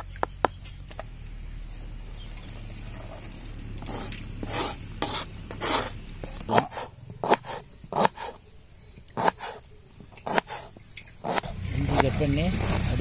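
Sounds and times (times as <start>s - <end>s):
knife scraping on plastic board: 3.8s - 8.4s, 9.2s - 9.6s, 10.2s - 13.0s
knife chopping ginger on board: 6.5s - 8.3s, 9.2s - 9.6s, 10.3s - 13.0s.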